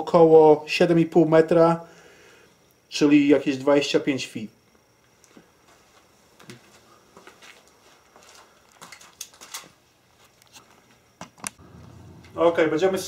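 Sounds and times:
faint footsteps: 0:05.0 - 0:12.4.

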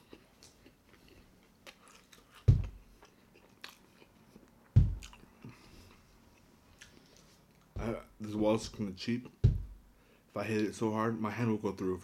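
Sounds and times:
hand thumping on thin wall: 0:02.5 - 0:02.8, 0:04.8 - 0:05.0, 0:07.8 - 0:08.8, 0:09.4 - 0:09.8.

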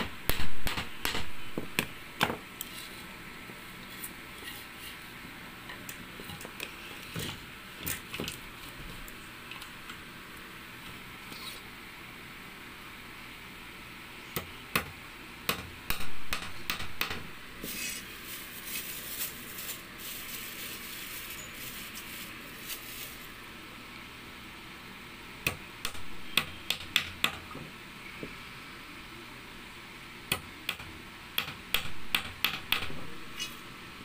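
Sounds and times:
hammer striking nails: 0:00.3 - 0:02.4, 0:14.4 - 0:17.3, 0:25.5 - 0:27.5, 0:30.3 - 0:33.0.

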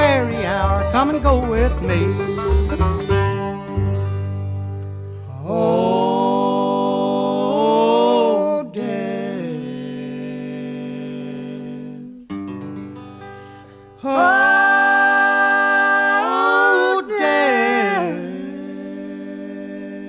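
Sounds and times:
wordless harmony singing: 0:00.0 - 0:04.0, 0:05.2 - 0:12.3, 0:14.0 - 0:20.0
acoustic string accompaniment: 0:00.0 - 0:07.4, 0:11.4 - 0:16.7.

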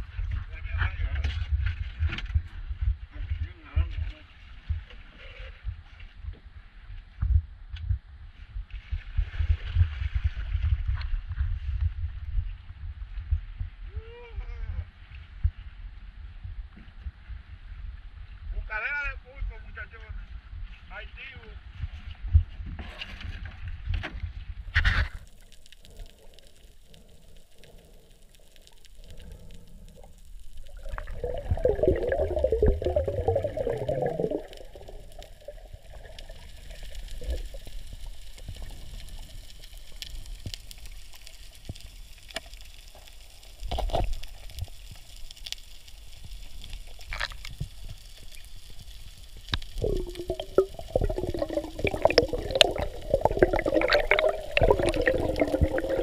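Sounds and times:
water gurgling and bubbling: 0:25.4 - 0:40.2, 0:49.6 - 0:56.0.

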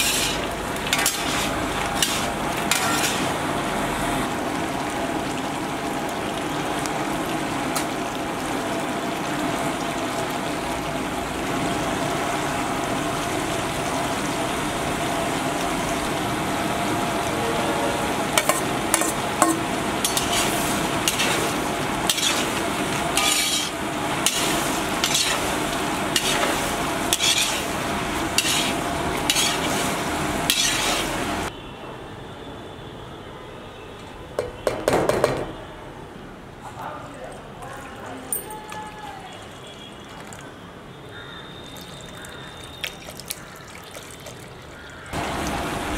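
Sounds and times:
steel ladle scraping a pan: 0:00.0 - 0:03.4, 0:18.4 - 0:31.3
chicken frying in a wok: 0:00.0 - 0:31.6, 0:40.4 - 0:45.9.

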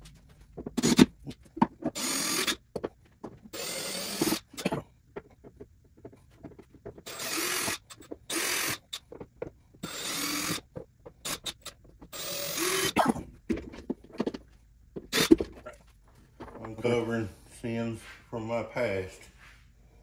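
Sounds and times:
cordless drill running: 0:01.9 - 0:02.6, 0:03.5 - 0:04.6, 0:07.0 - 0:09.0, 0:09.8 - 0:10.6, 0:11.2 - 0:13.0.

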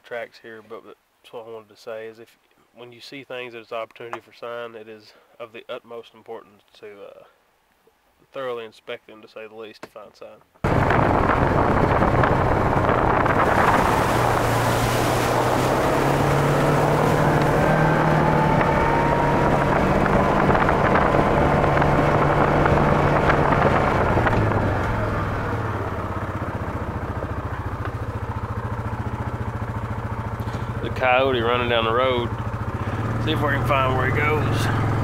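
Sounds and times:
vehicle engine running: 0:10.6 - 0:35.0
wind and road noise: 0:10.6 - 0:35.0.

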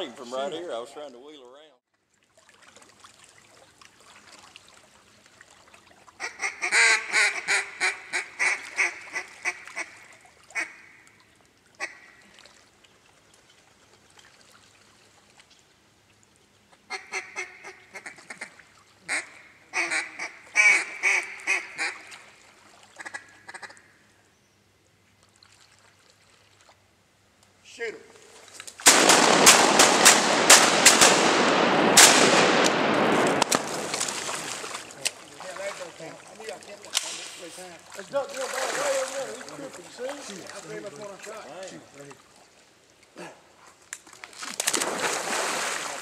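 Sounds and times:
duck call quacking: 0:06.2 - 0:11.0, 0:11.8 - 0:12.2, 0:16.9 - 0:22.2, 0:23.0 - 0:23.9.

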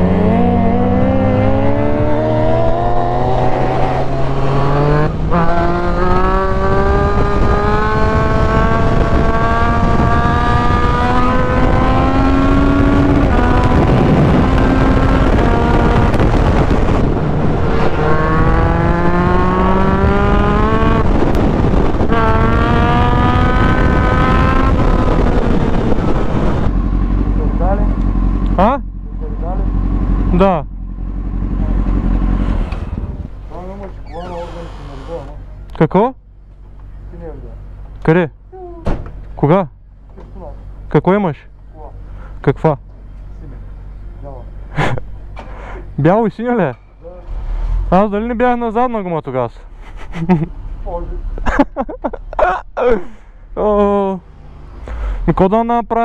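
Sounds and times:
wind rush: 0:00.0 - 0:27.1, 0:32.3 - 0:35.0
motorcycle engine accelerating: 0:00.0 - 0:35.8.

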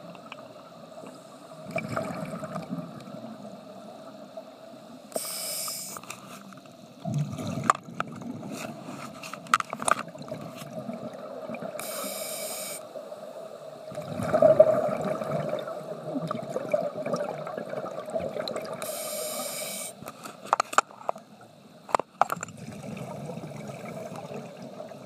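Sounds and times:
exhaled air bubbling: 0:01.5 - 0:03.6, 0:07.0 - 0:08.8, 0:10.1 - 0:12.2, 0:13.7 - 0:19.5, 0:22.3 - 0:25.0
regulator hissing inhale: 0:05.1 - 0:06.5, 0:11.8 - 0:13.0, 0:18.8 - 0:20.4.

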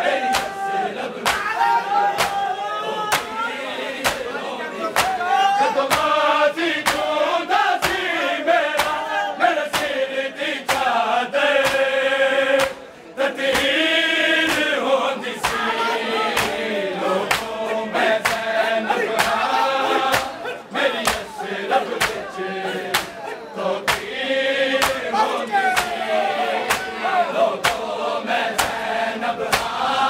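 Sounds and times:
chorus of mourners chanting: 0:00.0 - 0:30.0
crowd slapping chests in unison: 0:00.0 - 0:30.0
man reciting a lament: 0:15.1 - 0:27.4.

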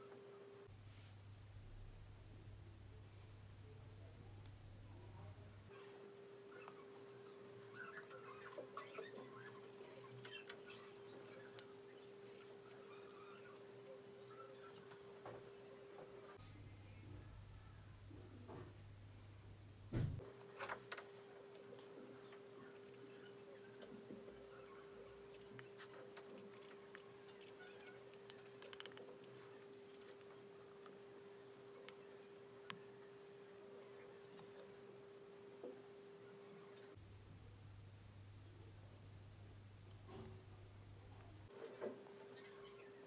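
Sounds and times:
faint steady hum: 0:00.0 - 0:43.0
metal spatula scraping and clicking: 0:09.5 - 0:14.0, 0:25.0 - 0:30.2.

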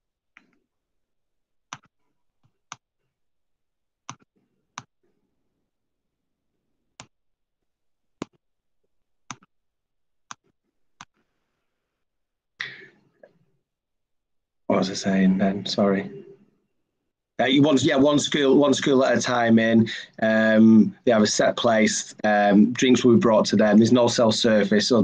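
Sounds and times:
computer mouse clicks: 0:04.1 - 0:04.9.

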